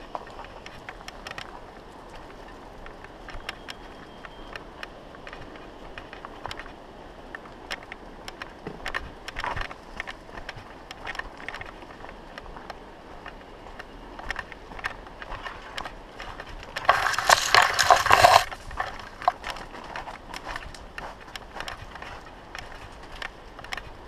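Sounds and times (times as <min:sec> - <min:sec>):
bike clicks and rattles: 0:00.4 - 0:13.4, 0:14.2 - 0:24.0
bike rolling on gravel: 0:05.1 - 0:24.0
branches rustling and snapping: 0:15.7 - 0:23.9.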